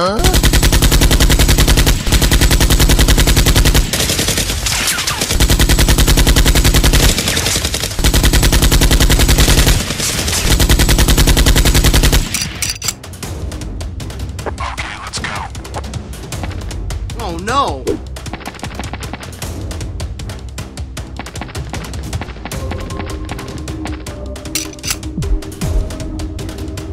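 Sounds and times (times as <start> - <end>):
machine-gun fire bursts: 0.2 - 12.6.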